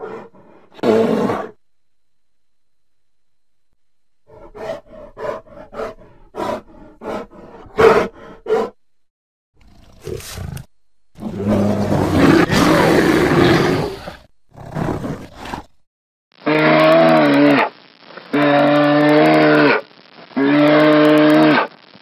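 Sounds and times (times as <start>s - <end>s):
creature loud roar: 11.2s - 15.3s.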